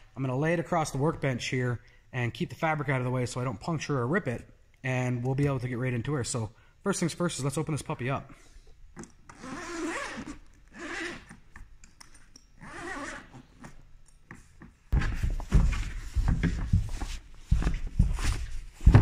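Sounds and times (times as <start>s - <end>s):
fabric scuffing across workbench: 14.9s - 19.0s.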